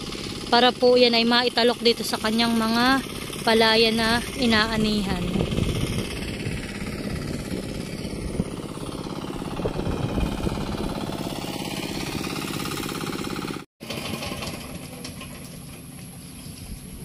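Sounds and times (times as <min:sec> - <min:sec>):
small tractor engine chugging: 0:00.0 - 0:17.0.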